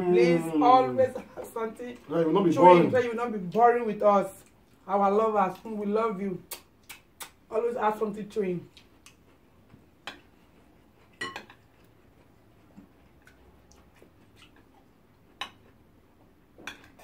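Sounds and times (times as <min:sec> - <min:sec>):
metal spoon clinking on a platter: 0:11.2 - 0:11.6.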